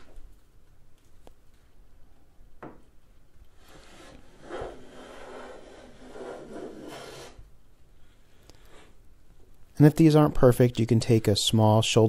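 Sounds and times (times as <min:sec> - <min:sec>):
plane cutting wood: 0:03.7 - 0:07.4.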